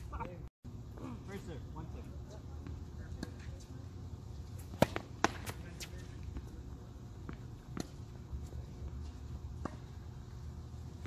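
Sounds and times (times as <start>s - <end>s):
tennis ball bouncing on hard court: 4.6s - 6.6s, 7.2s - 8.1s.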